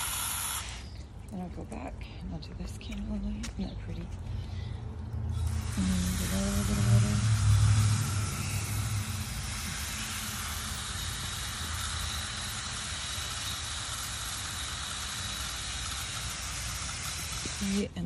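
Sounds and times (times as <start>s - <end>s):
hose water spraying on mulch: 5.4s - 18.0s.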